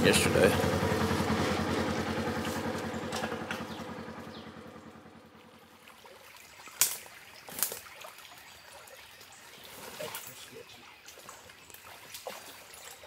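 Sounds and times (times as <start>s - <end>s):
vehicle engine running: 0.0s - 5.8s
sticks snapping underfoot: 6.8s - 7.8s.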